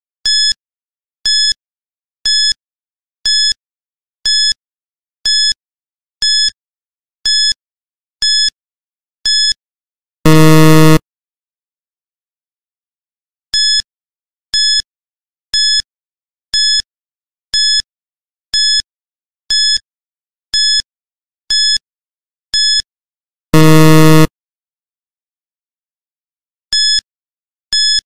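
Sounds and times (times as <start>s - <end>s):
low buzzer: 10.3s - 11.0s, 23.6s - 24.3s
short high beeps: 10.3s - 11.0s, 23.6s - 24.3s.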